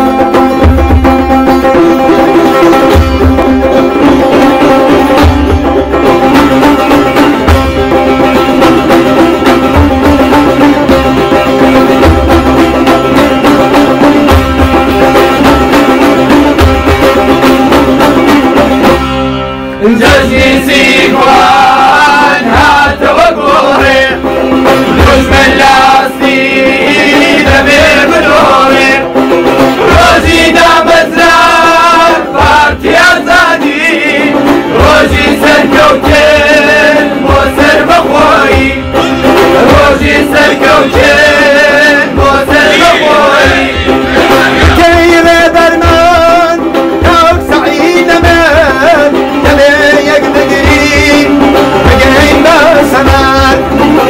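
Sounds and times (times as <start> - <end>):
hand drum beat: 0.0 - 19.2, 19.8 - 54.0
long-necked lute: 0.0 - 54.0
men singing: 19.8 - 54.0.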